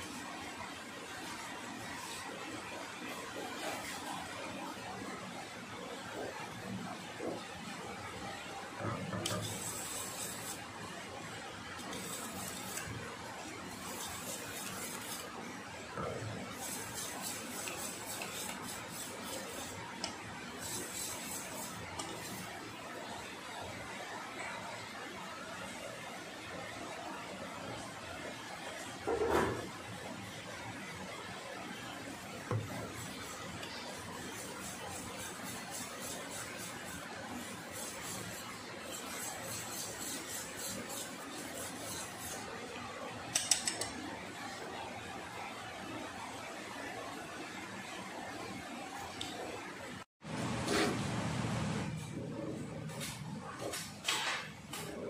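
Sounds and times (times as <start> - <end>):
whisk beating in metal bowl: 9.1 - 10.8, 11.7 - 15.4, 16.0 - 22.6, 32.4 - 42.6
whisk tapping metal bowl: 16.5 - 22.2, 43.4 - 43.9.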